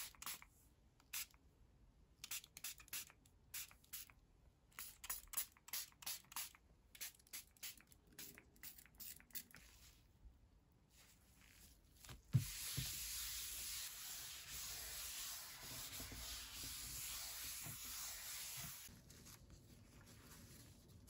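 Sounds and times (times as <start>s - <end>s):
wipe scrubbing a desk: 10.9s - 21.0s.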